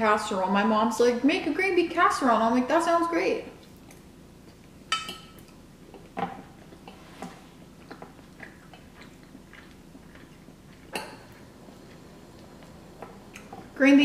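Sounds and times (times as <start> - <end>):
quiet chewing: 3.6 - 13.8.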